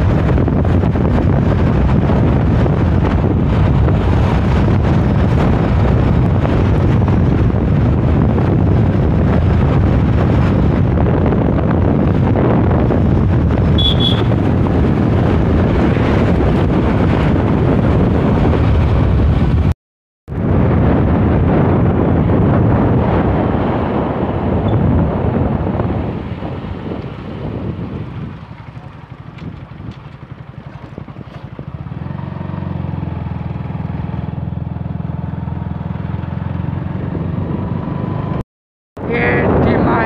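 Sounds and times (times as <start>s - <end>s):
motorbike running and road noise: 0.0s - 38.4s, 39.0s - 40.0s
wind rushing over microphone: 0.0s - 38.4s, 39.0s - 40.0s.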